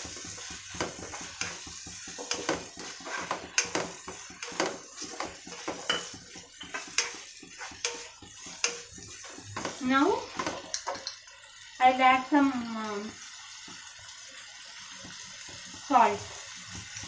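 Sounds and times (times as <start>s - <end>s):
spatula scraping a pan: 0.0s - 11.2s
vegetables sizzling: 0.0s - 17.0s.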